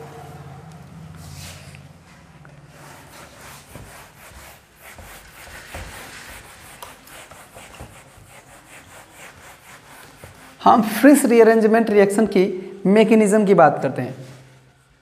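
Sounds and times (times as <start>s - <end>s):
duster rubbing whiteboard: 2.7s - 11.0s.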